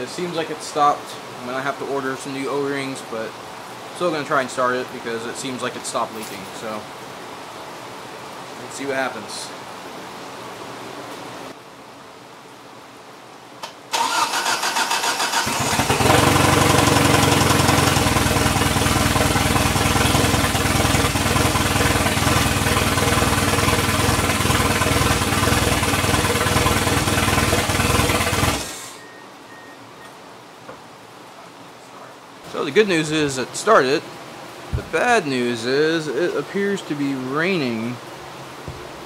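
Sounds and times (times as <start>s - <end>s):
car engine running: 15.4s - 28.9s.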